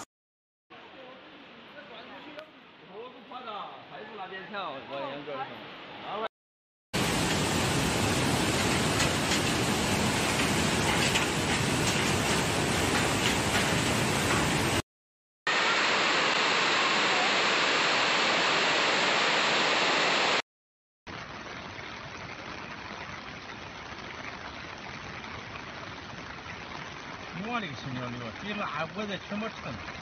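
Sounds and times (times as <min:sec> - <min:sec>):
floodwater rushing: 0:07.0 - 0:14.8, 0:15.5 - 0:20.4
heavy rain pouring: 0:07.0 - 0:14.8, 0:15.5 - 0:20.4, 0:21.1 - 0:30.0.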